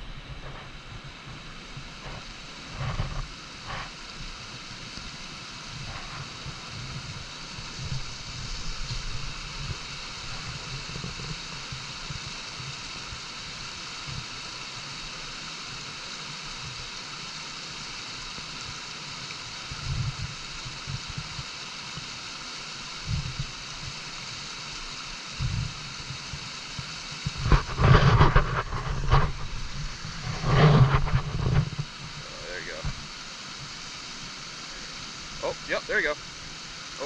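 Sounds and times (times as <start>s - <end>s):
stream running water: 0.0s - 37.0s
loud rough rumbling bursts: 27.4s - 33.0s.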